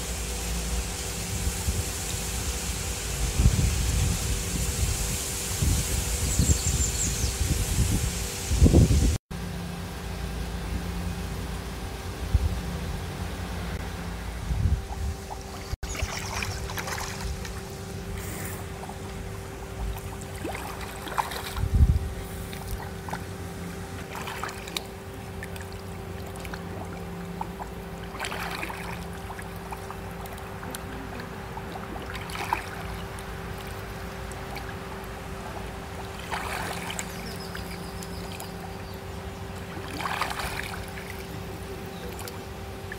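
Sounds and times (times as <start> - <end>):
steady low hum: 0.0 - 42.9
swimmer splashing in pool: 15.3 - 38.7, 39.5 - 42.9.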